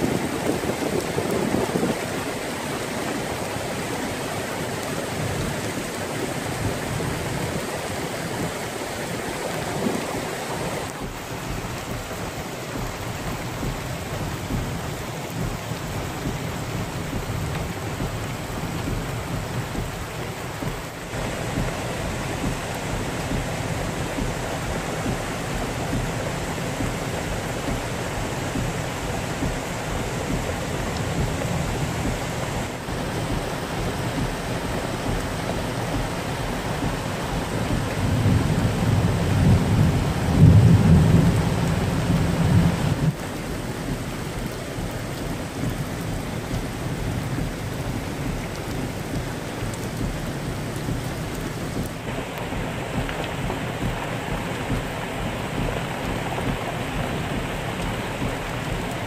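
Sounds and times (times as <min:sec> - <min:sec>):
flood water rushing over rocks: 0:00.0 - 0:59.0.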